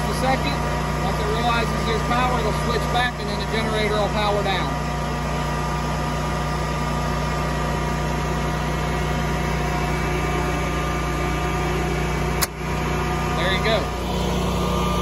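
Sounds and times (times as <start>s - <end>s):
generator running: 0.0s - 15.0s.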